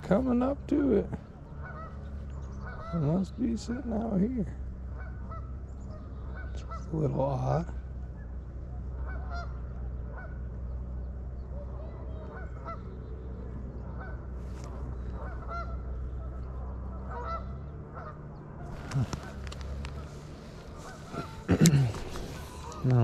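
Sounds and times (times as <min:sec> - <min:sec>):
geese honking: 0:00.0 - 0:23.0
steady low hum: 0:00.0 - 0:23.0
rustling noise: 0:18.7 - 0:22.9.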